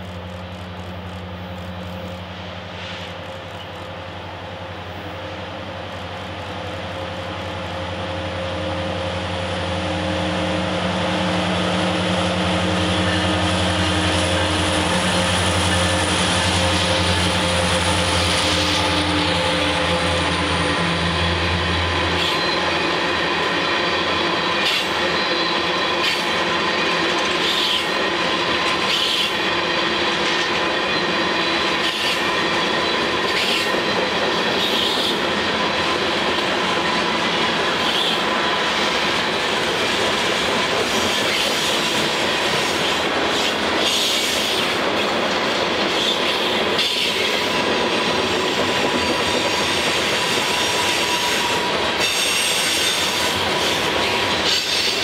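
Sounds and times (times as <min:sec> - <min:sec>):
diesel locomotive engine drone: 0:00.0 - 0:55.0
high wheel squeal: 0:12.6 - 0:23.1, 0:48.3 - 0:55.0.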